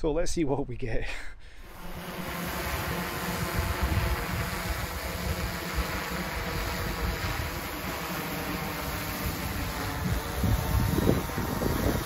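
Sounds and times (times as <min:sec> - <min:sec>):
drone rotors droning: 0:01.6 - 0:12.0
wind buffeting microphone: 0:02.5 - 0:07.9, 0:08.8 - 0:12.0.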